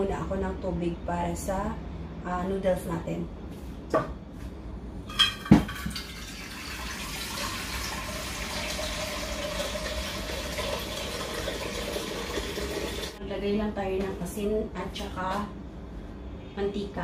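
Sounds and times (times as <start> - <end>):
tap water running into pot: 5.6 - 13.2.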